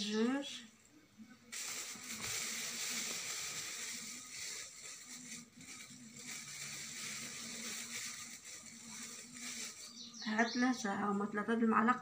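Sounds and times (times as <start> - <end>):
plastic bag rustling: 1.5 - 10.3.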